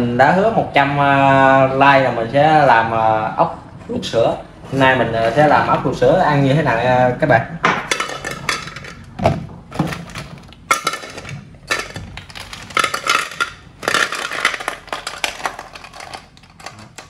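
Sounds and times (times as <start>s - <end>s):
snail shells clattering against metal: 7.9s - 9.2s, 9.8s - 17.0s.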